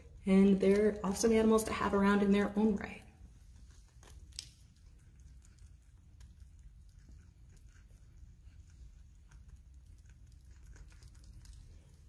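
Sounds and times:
groundhog chewing food: 3.2 - 12.0.

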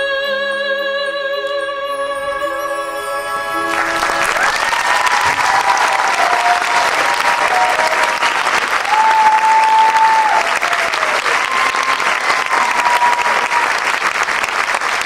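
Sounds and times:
audience applauding: 3.6 - 15.0
crowd whistling: 3.6 - 15.0.

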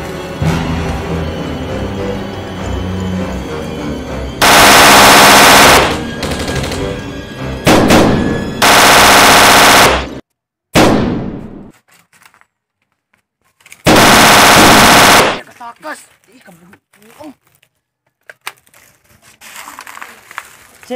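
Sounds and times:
automatic gunfire bursts: 4.4 - 6.7, 7.7 - 10.2, 13.9 - 15.4
single gunshot ringing out: 10.8 - 11.7.

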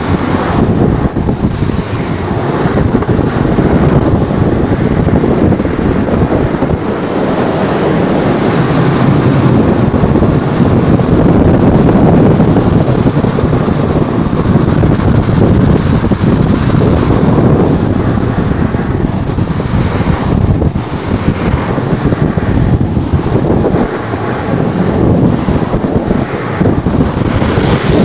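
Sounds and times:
low road rumble: 0.0 - 28.0
wind buffeting microphone: 0.0 - 28.0.

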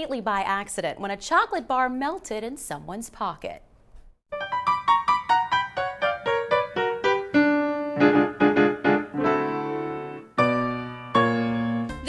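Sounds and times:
piano music: 4.3 - 12.0.

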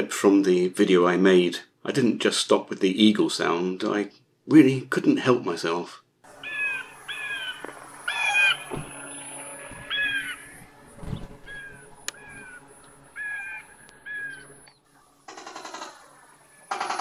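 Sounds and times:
low thumps: 8.6 - 12.7.

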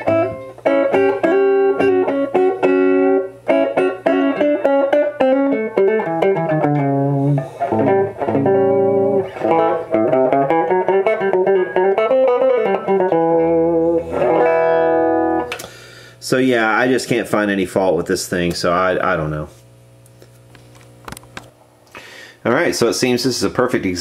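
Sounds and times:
electric guitar single-note lines: 0.0 - 16.1.

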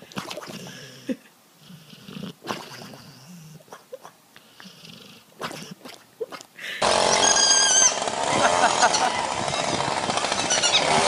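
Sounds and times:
dog making soft noises asleep: 1.7 - 6.5.

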